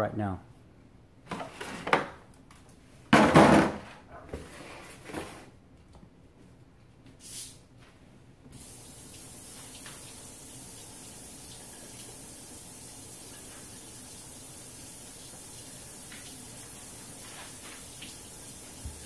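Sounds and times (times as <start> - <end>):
plastic packaging knocking: 3.1 - 3.8
kitchen tap running: 8.5 - 19.0.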